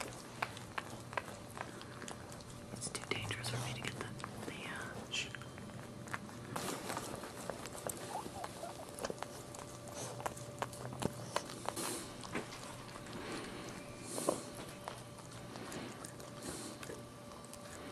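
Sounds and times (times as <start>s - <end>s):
dog licking puppy: 0.0s - 17.9s
faint high puppy squeaks: 8.0s - 9.2s.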